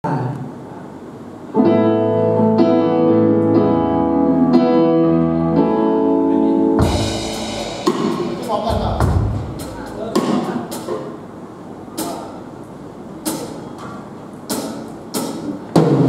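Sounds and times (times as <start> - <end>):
electric keyboard chords: 1.5 - 11.2
harsh noisy sound: 6.8 - 10.9.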